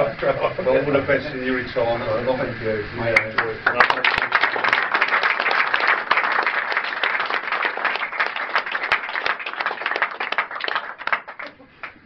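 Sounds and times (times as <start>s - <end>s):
people applauding: 3.1s - 12.0s.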